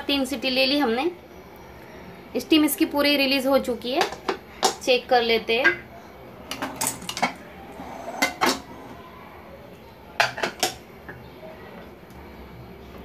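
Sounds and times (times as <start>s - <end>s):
metal lid clanking against pot: 8.2s - 8.7s.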